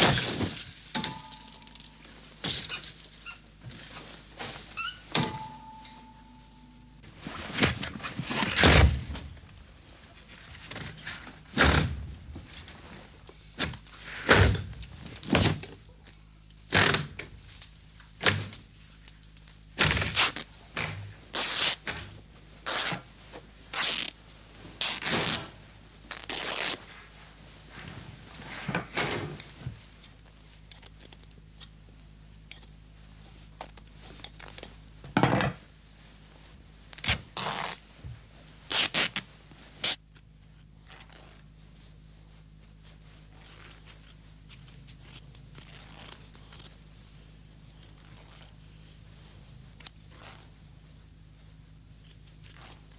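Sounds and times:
clothes ripping: 19.8s - 20.5s, 21.3s - 21.9s, 22.6s - 23.1s, 23.7s - 24.2s, 24.8s - 26.8s, 37.0s - 37.8s, 38.7s - 40.1s.

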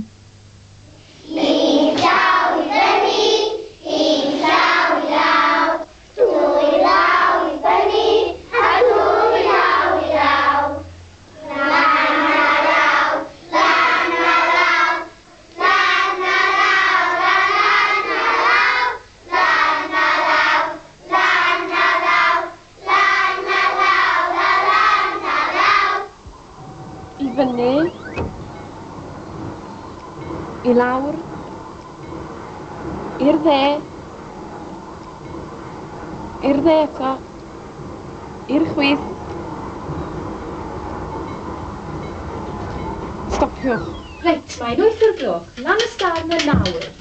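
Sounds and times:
children singing: 1.3s - 26.2s.

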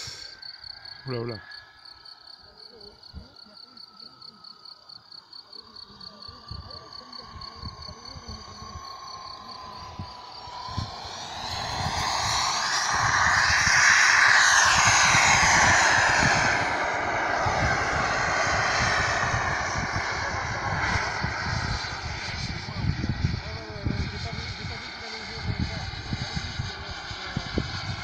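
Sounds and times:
model jet turbine whine: 5.9s - 28.0s
wind buffeting microphone: 6.1s - 28.0s.

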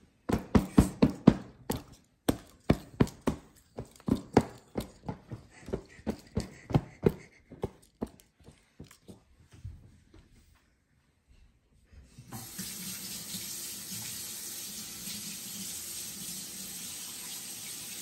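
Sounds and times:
hands patting a pillow: 0.2s - 8.8s.

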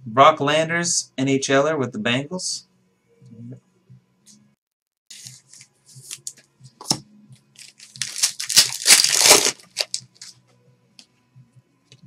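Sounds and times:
foil wrapper crinkling and tearing: 7.6s - 10.4s.

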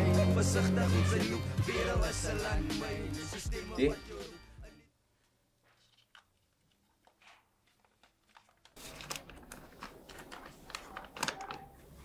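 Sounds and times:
paper rustling and crinkling: 5.2s - 12.0s.

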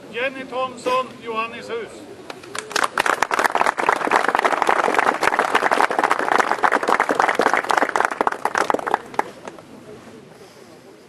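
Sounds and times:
audience applauding: 2.3s - 9.6s.

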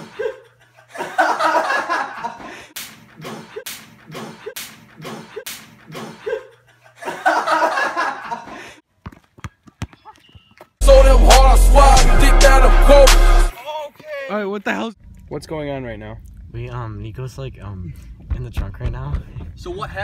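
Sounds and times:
young men laughing: 0.0s - 8.8s
basketball bouncing on pavement: 9.0s - 10.8s.

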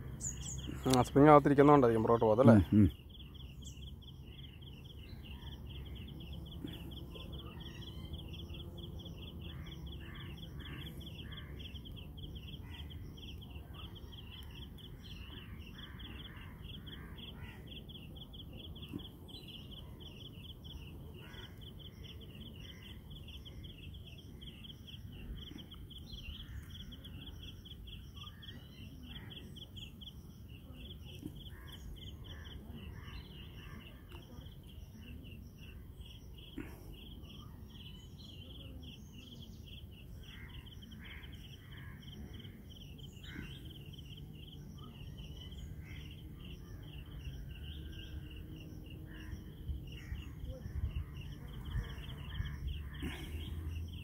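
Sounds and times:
outdoor background noise: 0.0s - 54.0s
insect chirping: 39.5s - 54.0s.

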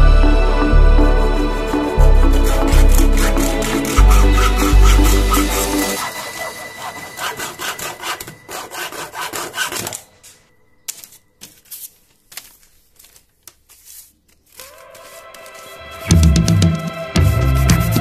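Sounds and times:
hacksaw cutting: 2.1s - 10.4s.

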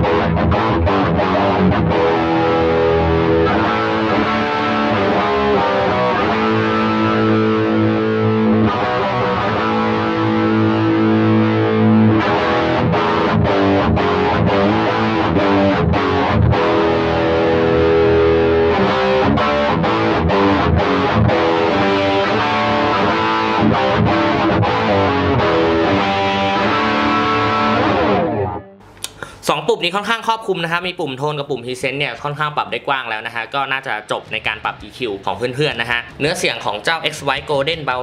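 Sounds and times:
distorted electric guitar: 0.0s - 29.3s.

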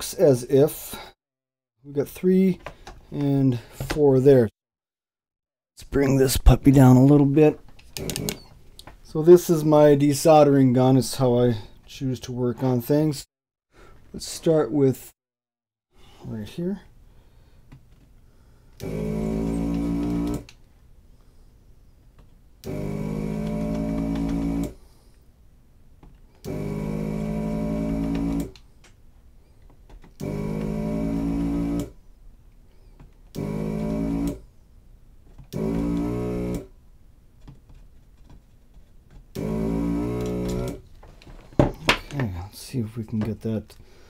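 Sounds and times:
desoldering pump buzzing: 7.9s - 8.5s, 18.8s - 20.6s, 22.6s - 24.8s, 26.4s - 28.6s, 30.2s - 32.0s, 33.3s - 34.4s, 35.5s - 36.7s, 39.3s - 40.9s.

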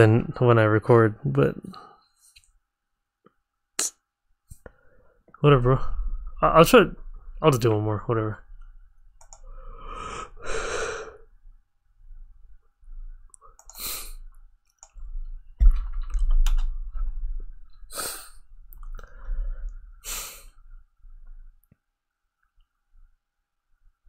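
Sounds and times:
faint clicks: 9.2s - 9.5s, 13.3s - 13.9s
man breathing out heavily: 9.5s - 11.3s
low rumbling of movement: 15.0s - 17.9s.

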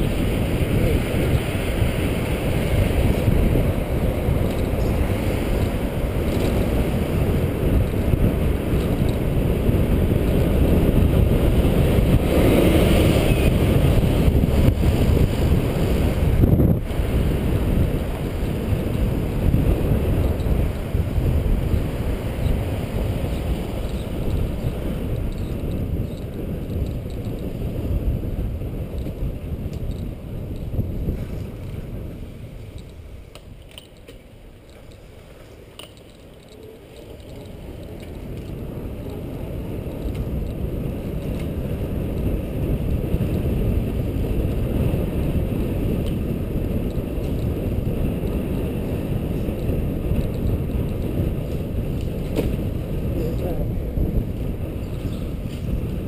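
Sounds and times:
wind rumbling over microphone: 0.0s - 56.0s
faint clicks: 35.7s - 39.2s.

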